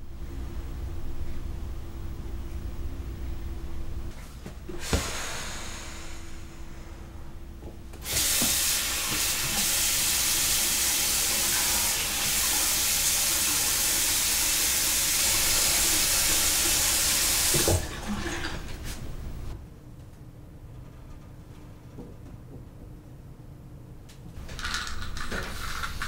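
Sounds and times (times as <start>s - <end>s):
tap water running: 7.9s - 19.5s, 24.4s - 26.0s.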